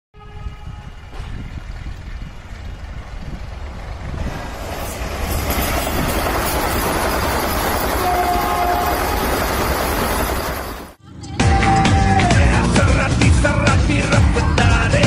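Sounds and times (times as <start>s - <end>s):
train running past: 0.2s - 11.0s.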